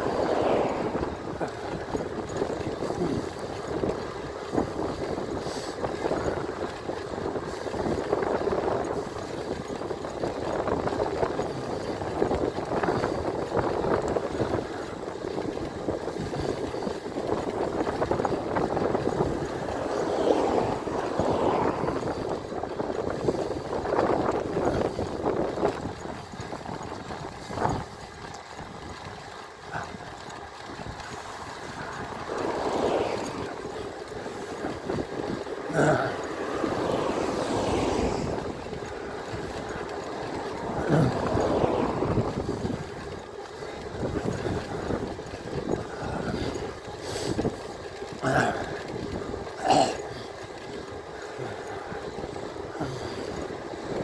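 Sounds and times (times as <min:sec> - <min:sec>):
electric bike riding noise: 0:00.0 - 0:54.0.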